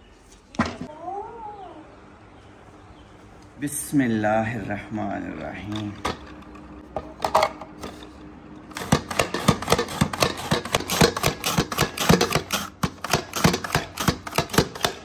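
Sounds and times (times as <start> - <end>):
vegetable slicer clacking: 8.7 - 15.0.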